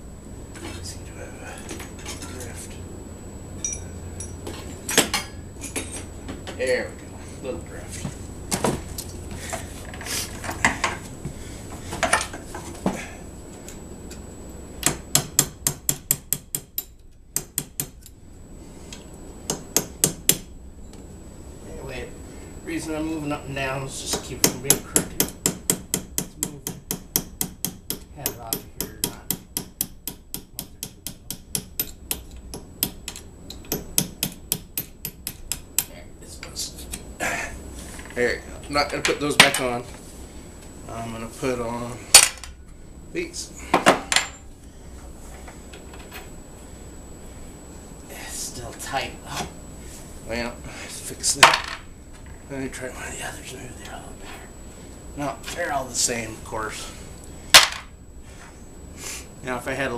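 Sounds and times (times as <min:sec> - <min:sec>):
hammer striking steel punch: 0:14.8 - 0:18.1, 0:19.5 - 0:20.5, 0:24.4 - 0:35.9.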